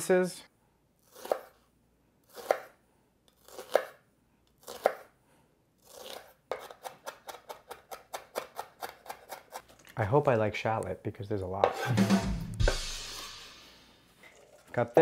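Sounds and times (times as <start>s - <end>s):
knife chopping on wooden board: 2.4s - 2.7s.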